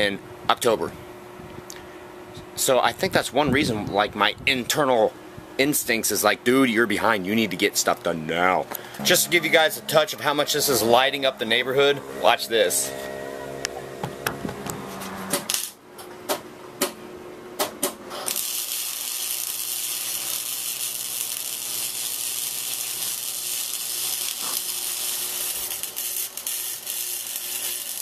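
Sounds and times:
welding arc crackling hiss: 15.5 - 15.8, 18.1 - 28.0.

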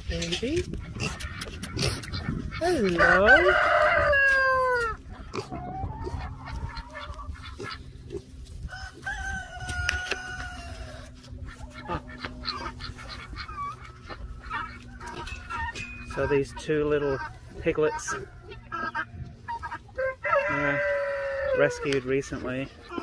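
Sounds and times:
hens clucking: 0.0 - 23.0
rooster crowing: 2.9 - 5.0, 8.6 - 11.2, 20.0 - 21.7.

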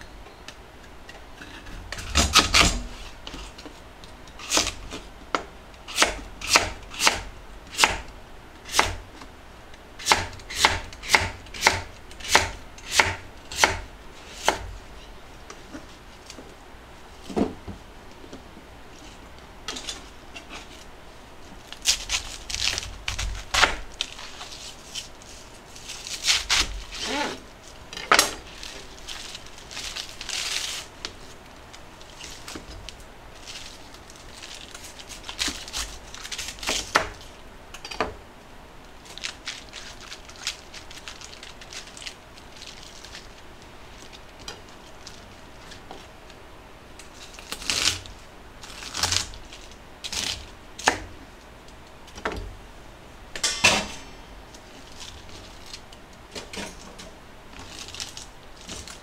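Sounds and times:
cabbage leaves crackling and tearing: 21.5 - 37.4, 38.9 - 46.2, 47.0 - 51.0, 54.4 - 56.1, 57.5 - 59.0.

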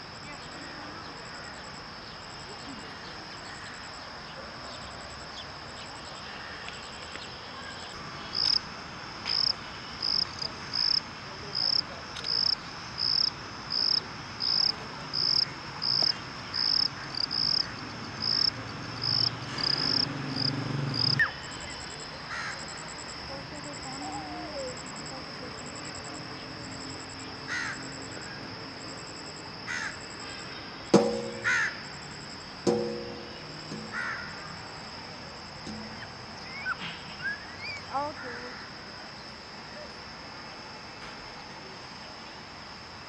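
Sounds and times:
insects droning: 0.0 - 43.0
loud insect chirp: 0.0 - 43.0.

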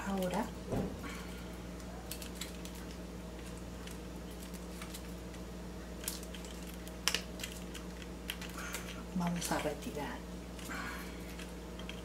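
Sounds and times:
steady low hum: 0.0 - 12.0
foil crinkling and clicks: 1.8 - 9.6.

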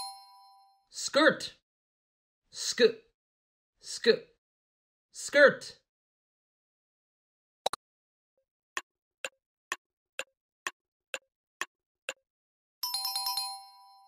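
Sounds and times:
clock-like ticking: 8.8 - 12.3.

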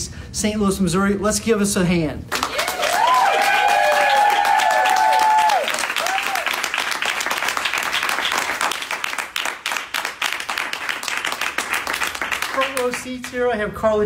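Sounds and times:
audience applauding: 2.3 - 13.4.

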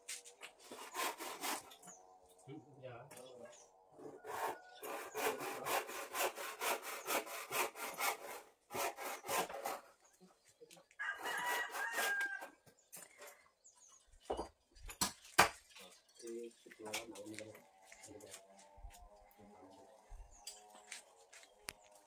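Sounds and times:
rooster crowing: 4.1 - 4.8, 11.0 - 12.6.

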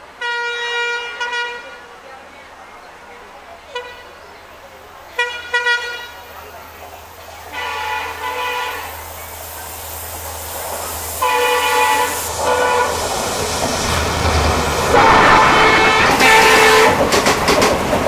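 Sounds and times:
rush of passing train: 0.0 - 18.0
locomotive horn blasts: 0.2 - 1.8, 5.2 - 6.2, 7.5 - 8.9, 11.2 - 13.0, 14.9 - 17.1
locomotive engine rumble: 2.9 - 18.0.

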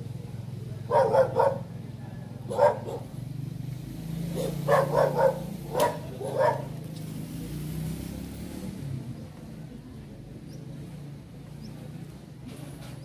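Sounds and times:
dog barking: 0.8 - 3.2, 4.3 - 6.8.

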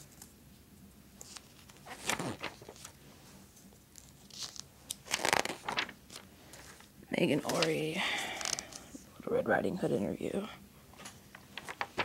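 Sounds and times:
magazine pages rustling: 1.1 - 8.9, 11.0 - 12.0.

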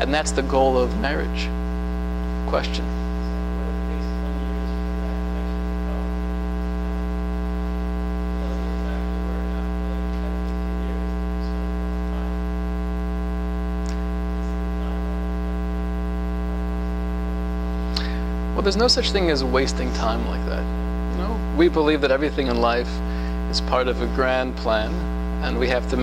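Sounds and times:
loud mains hum: 0.0 - 26.0
faint distant voice: 2.7 - 7.0, 8.3 - 12.5.

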